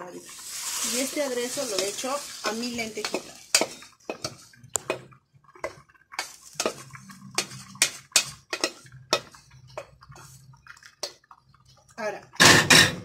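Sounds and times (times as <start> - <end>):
boiling water bubbling: 0.0 - 13.0
wooden spoon knocking metal pot: 3.0 - 5.8.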